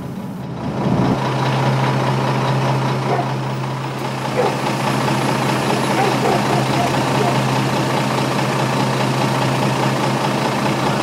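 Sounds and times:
heavy vehicle engine idling: 0:00.0 - 0:11.0.

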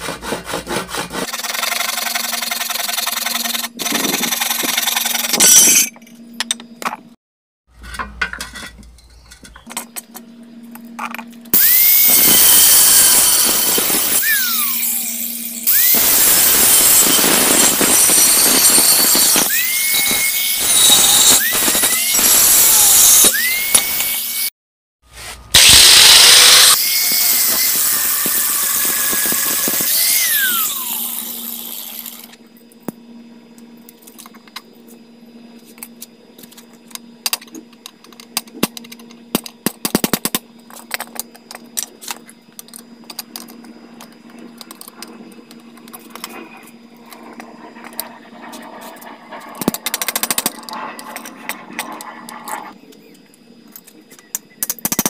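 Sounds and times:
angle grinder cutting steel pipe: 0:11.6 - 0:24.5, 0:25.6 - 0:32.4.

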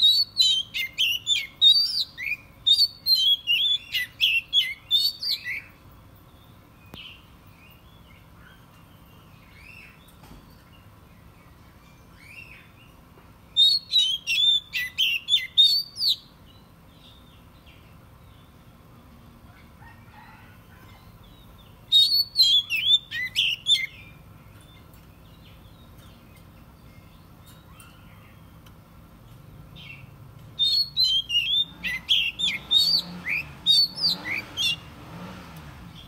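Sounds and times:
bird singing whistled phrases: 0:00.0 - 0:05.7, 0:13.6 - 0:16.3, 0:21.9 - 0:24.1, 0:30.6 - 0:34.9.

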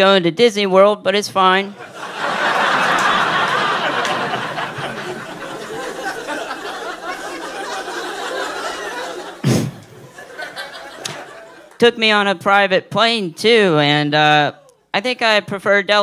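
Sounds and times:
audience laughing: 0:01.7 - 0:11.8.

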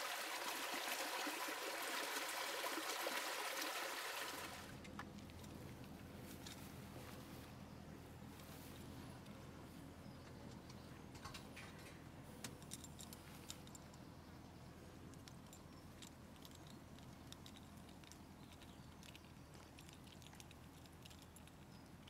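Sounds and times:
low steady hum: 0:04.0 - 0:22.0
small clicks and ticks: 0:15.1 - 0:22.0.

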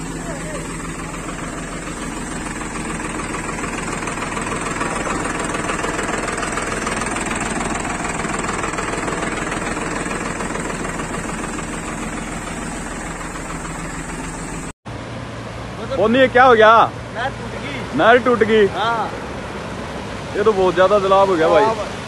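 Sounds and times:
tractor diesel engine running: 0:00.0 - 0:14.8.

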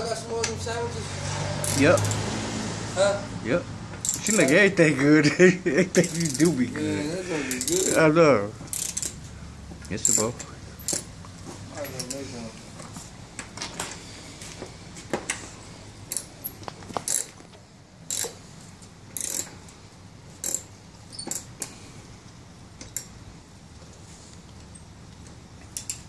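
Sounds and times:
metal tools clinking and scraping: 0:04.0 - 0:04.7, 0:06.0 - 0:08.1, 0:09.9 - 0:11.1, 0:11.7 - 0:14.0.

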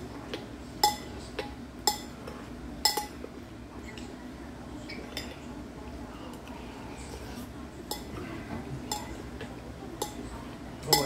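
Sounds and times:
utensils clinking against bowl: 0:02.8 - 0:03.2, 0:05.0 - 0:05.4, 0:07.9 - 0:08.2, 0:08.9 - 0:09.2, 0:10.0 - 0:11.0.

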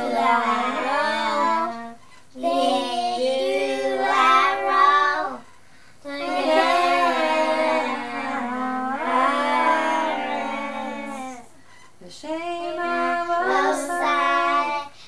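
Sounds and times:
child singing: 0:00.0 - 0:05.4, 0:06.0 - 0:11.5, 0:12.2 - 0:15.0.

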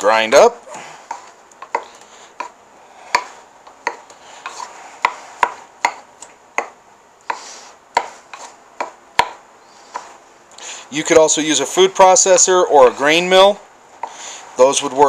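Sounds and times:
soft scraping and mashing: 0:00.8 - 0:06.1, 0:07.3 - 0:09.0, 0:09.7 - 0:10.4.

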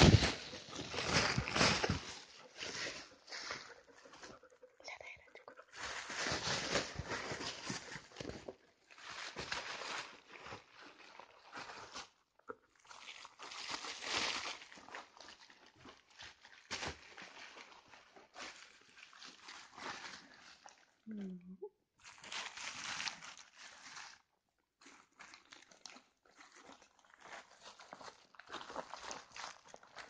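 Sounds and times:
dog tearing wrapping: 0:00.0 - 0:03.5, 0:05.7 - 0:12.2, 0:12.9 - 0:15.4, 0:22.0 - 0:24.3
gift wrapping crinkling: 0:00.0 - 0:04.3, 0:05.2 - 0:20.9, 0:22.0 - 0:30.0.

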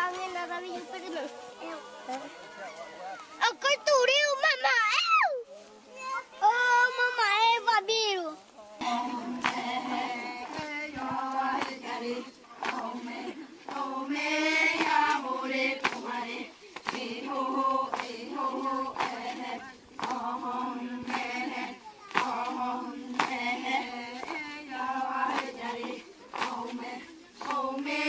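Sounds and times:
women and girls chanting in unison: 0:08.4 - 0:28.0.

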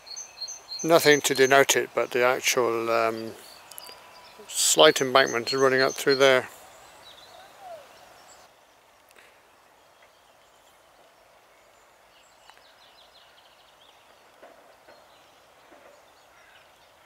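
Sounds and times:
distant bird chirps: 0:00.0 - 0:17.0
faint steady hiss: 0:00.0 - 0:17.0
faint clicks: 0:03.6 - 0:04.0.

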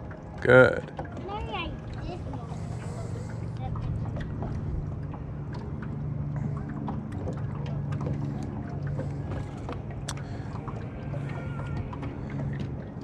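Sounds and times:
boat motor humming: 0:00.0 - 0:13.0
water sloshing: 0:00.0 - 0:13.0
clicks and knocks on hull: 0:03.7 - 0:13.0.

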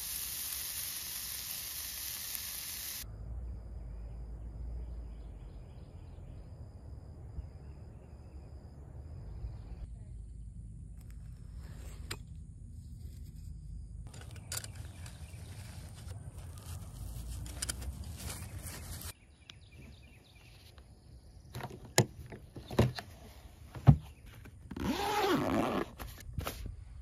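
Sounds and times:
scraping and rustling in ground: 0:11.0 - 0:19.2, 0:21.6 - 0:27.0.

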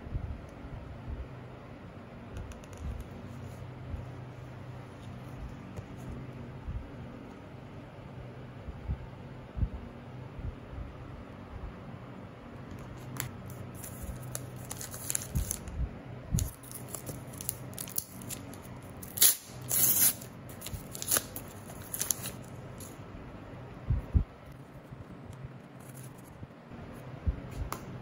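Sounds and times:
card pack ripping and crinkling: 0:13.5 - 0:15.6, 0:16.4 - 0:22.9.

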